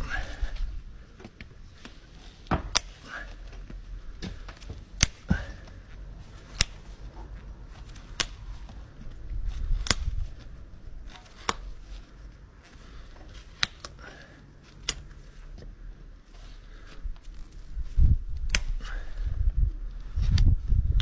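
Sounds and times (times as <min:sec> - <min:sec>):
hoof knife clicks: 0:07.9 - 0:08.4, 0:09.8 - 0:10.2, 0:18.4 - 0:18.8.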